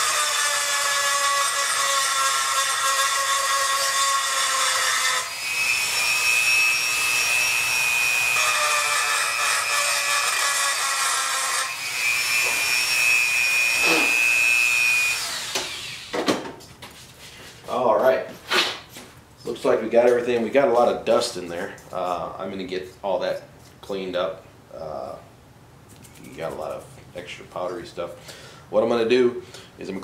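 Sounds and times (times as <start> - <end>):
rotary tool grinding metal: 0.0 - 16.2.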